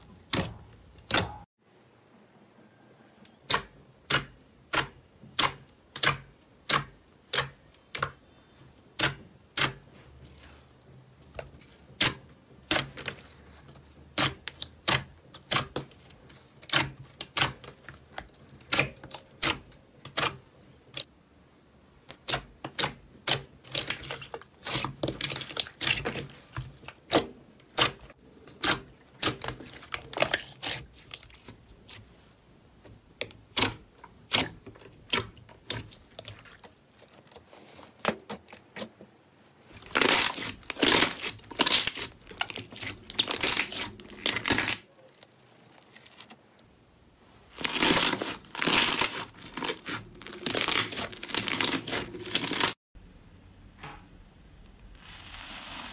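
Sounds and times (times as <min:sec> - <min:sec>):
slime popping and crackling: 0:39.8 - 0:46.4, 0:47.6 - 0:52.8.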